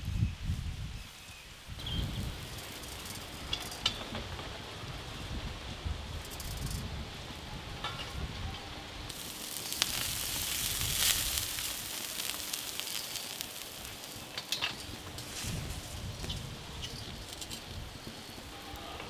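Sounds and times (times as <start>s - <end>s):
wind rumble on microphone: 0.0s - 13.8s, 14.8s - 19.0s
meat sizzling and crackling: 1.8s - 4.0s, 9.1s - 18.6s.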